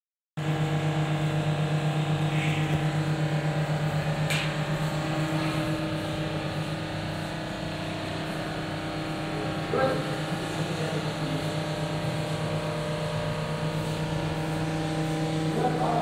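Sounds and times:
machinery humming: 0.4s - 16.0s.

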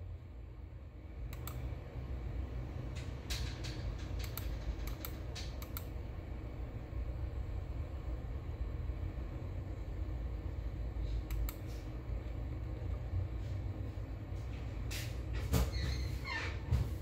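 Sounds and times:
low steady rumble: 0.0s - 17.0s
sharp clicks: 1.3s - 1.6s, 4.0s - 5.9s.

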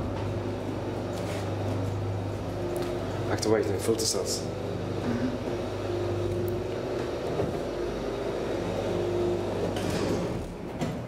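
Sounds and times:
elevator hoist motor hum: 0.0s - 11.0s
elevator motor whine: 0.0s - 11.0s.

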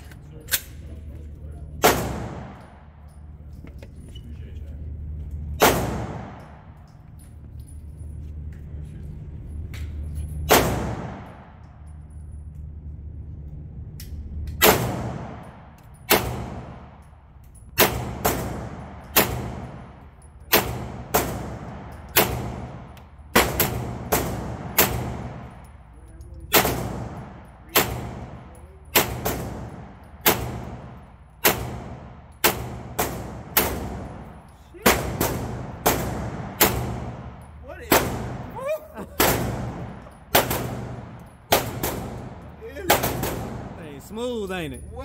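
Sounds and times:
low steady hum: 0.0s - 45.0s
gunshots with short echo: 5.5s - 6.7s.

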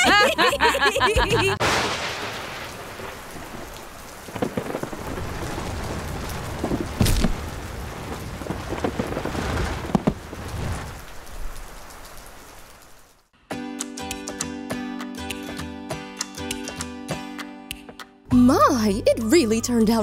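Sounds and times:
sharp thunderclap: 1.6s - 11.8s
low rolling thunder: 1.6s - 12.1s
heavy rain: 1.6s - 13.3s.

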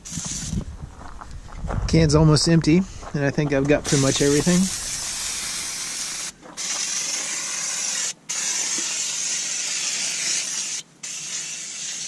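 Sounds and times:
aerosol can spraying: 0.0s - 0.6s, 3.9s - 12.0s.

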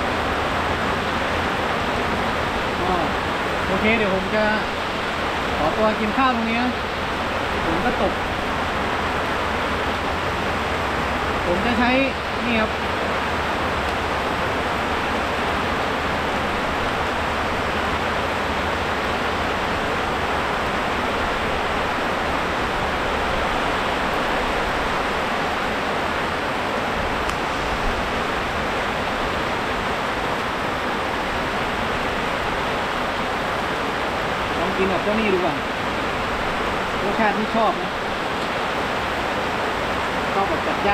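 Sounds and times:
heavy rain falling: 0.0s - 40.9s.

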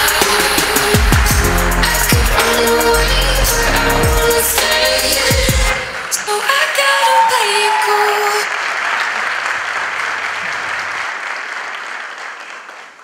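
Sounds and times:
music ending: 0.0s - 5.9s
audience applauding: 5.8s - 13.0s.

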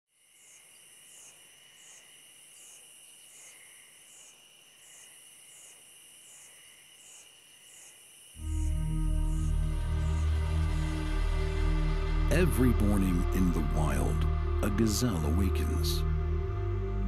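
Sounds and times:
insects trilling: 0.1s - 11.7s
crickets chirping: 0.1s - 12.3s.

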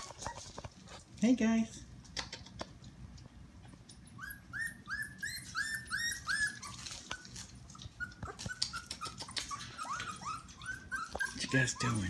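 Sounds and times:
puppies whining: 0.0s - 0.9s, 3.6s - 12.0s.

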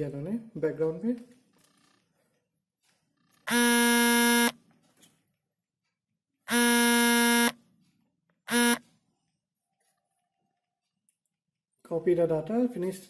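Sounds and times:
electric buzzing tone: 3.5s - 4.6s, 6.5s - 7.6s, 8.5s - 8.8s.

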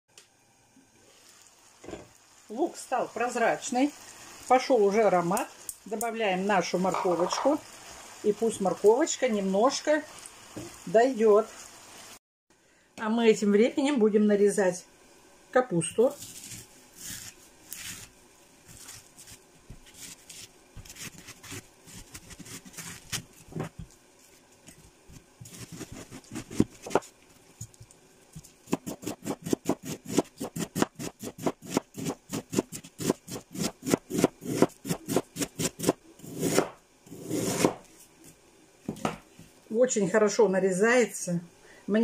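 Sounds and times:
knife scraping: 16.1s - 23.9s, 25.4s - 27.1s, 28.7s - 37.9s
knife chopping cabbage on board: 18.7s - 23.9s, 25.4s - 27.1s, 28.6s - 37.9s.

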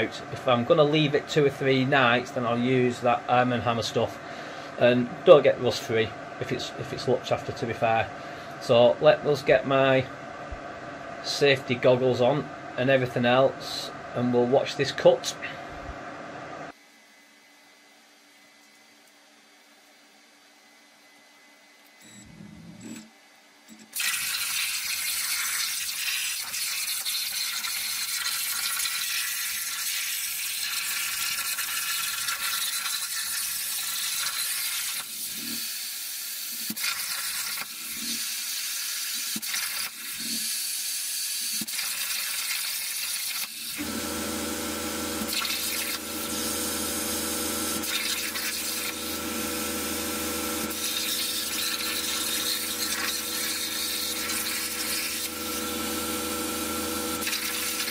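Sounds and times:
low machine hum: 0.0s - 23.8s, 43.7s - 57.9s
plasma cutter hissing: 24.0s - 57.9s.

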